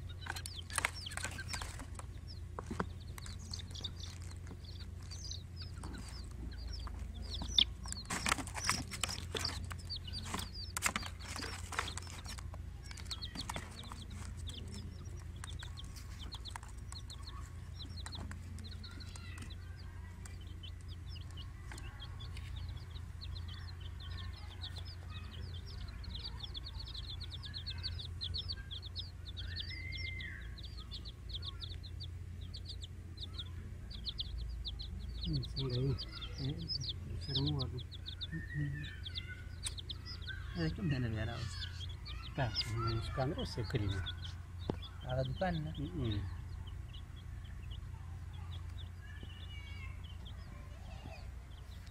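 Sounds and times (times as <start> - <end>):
baby chicks peeping: 0.0 - 51.9
sharp knocks and taps: 0.2 - 5.2.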